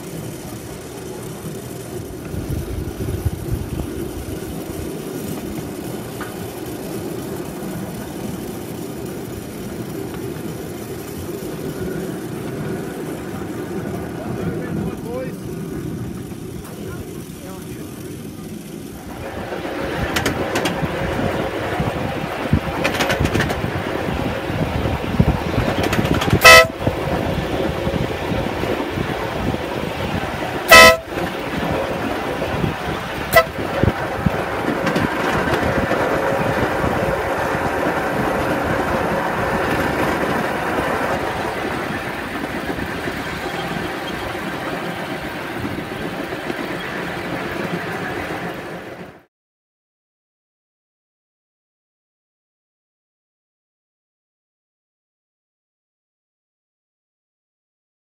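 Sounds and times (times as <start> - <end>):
miniature train running on track: 0.0 - 49.3
train horn toots: 26.3 - 26.9, 30.7 - 31.2, 33.3 - 33.8.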